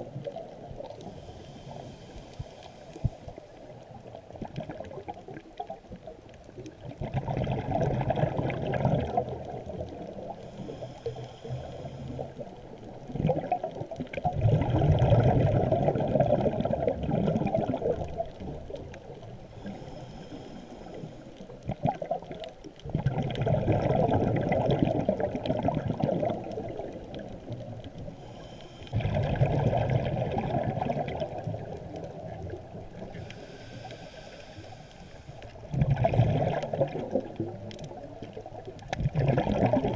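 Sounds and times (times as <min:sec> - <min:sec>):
faint inhalation hiss: 0:00.0 - 0:04.7, 0:09.1 - 0:13.2, 0:17.8 - 0:22.4, 0:26.1 - 0:36.1
bubbling regulator exhalation: 0:06.8 - 0:10.4, 0:13.1 - 0:18.3, 0:21.6 - 0:27.0, 0:28.9 - 0:33.2, 0:35.6 - 0:37.6, 0:38.8 - 0:39.9.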